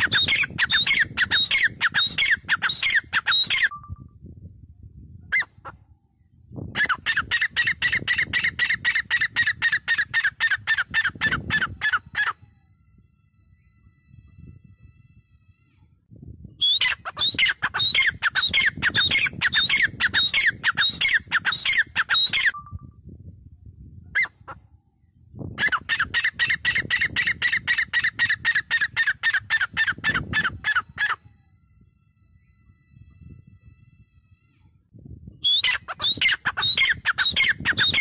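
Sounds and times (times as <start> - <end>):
bird calling shrill notes: 0.0 - 4.2, 16.6 - 23.0.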